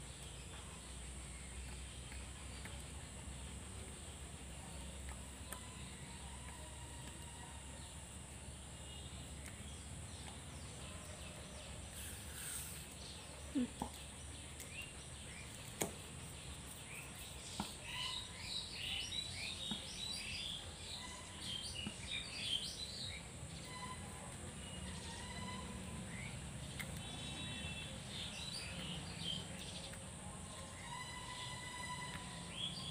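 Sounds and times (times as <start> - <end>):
faint steady background noise: 0.0 - 32.9
birds chirping: 8.0 - 32.9.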